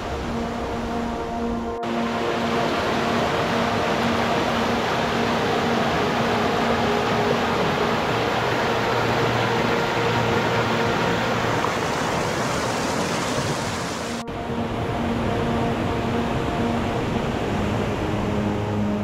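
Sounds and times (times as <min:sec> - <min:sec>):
stream rushing over rocks: 0:01.9 - 0:14.2.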